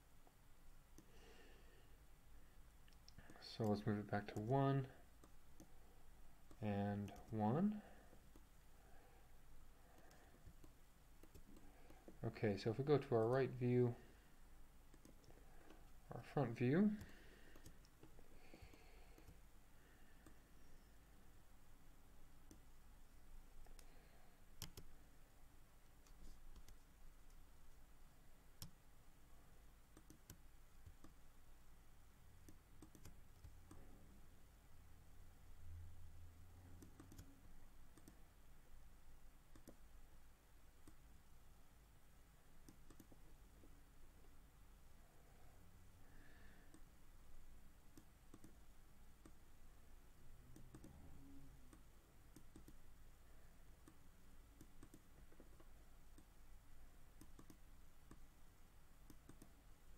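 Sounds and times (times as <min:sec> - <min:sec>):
low steady room hum: 0:00.0 - 0:59.9
computer mouse clicks: 0:10.0 - 0:12.2, 0:14.9 - 0:15.9, 0:16.9 - 0:19.4, 0:24.6 - 0:24.9, 0:26.0 - 0:27.4, 0:30.0 - 0:31.2, 0:32.5 - 0:33.9, 0:36.8 - 0:37.3, 0:37.9 - 0:38.2, 0:39.5 - 0:39.8, 0:42.6 - 0:43.2, 0:47.9 - 0:48.6, 0:50.5 - 0:51.0, 0:51.7 - 0:52.8, 0:54.6 - 0:56.3, 0:57.2 - 0:58.2, 0:59.0 - 0:59.6.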